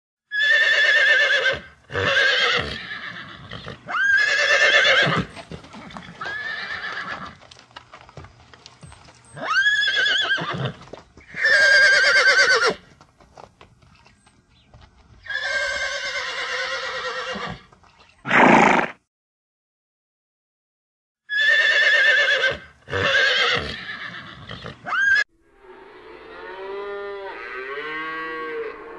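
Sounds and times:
horse neighing: 0.3 - 7.4, 9.4 - 12.8, 15.2 - 17.7, 18.3 - 19.0, 21.3 - 25.2.

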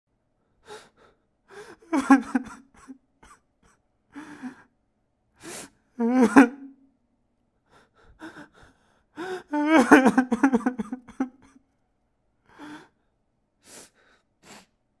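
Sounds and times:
young man crying: 1.5 - 4.7, 6.0 - 6.8, 8.1 - 11.6.

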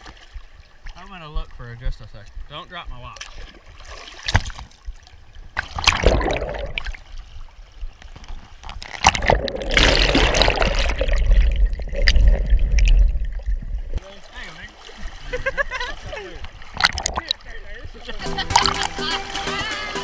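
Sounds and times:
water splashing and sloshing: 0.0 - 20.0
muffled underwater rush: 4.3 - 18.8.

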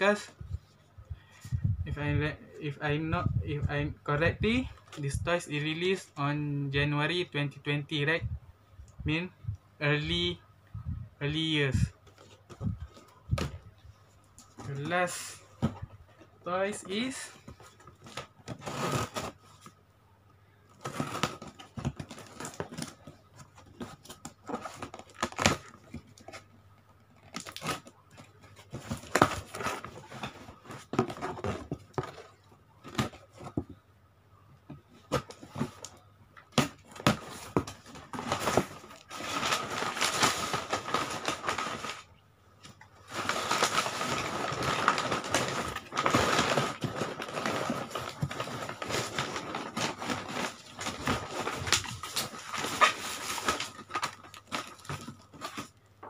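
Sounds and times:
cardboard flaps scraping and rustling: 27.2 - 33.8, 36.5 - 42.1, 43.0 - 55.8.

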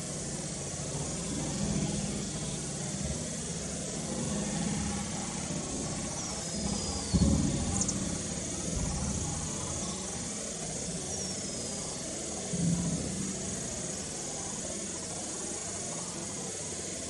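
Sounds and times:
low drone: 0.0 - 17.0
outdoor background hiss: 0.0 - 17.0.

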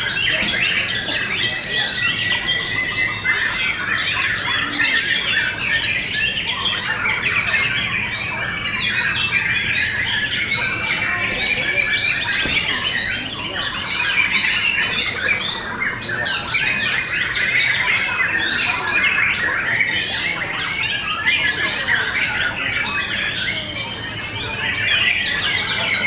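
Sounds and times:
birds singing: 0.0 - 26.0.

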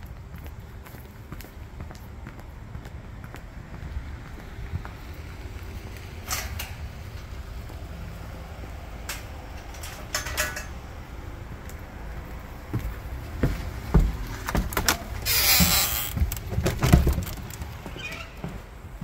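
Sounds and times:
wind rumble on microphone: 0.0 - 10.2.

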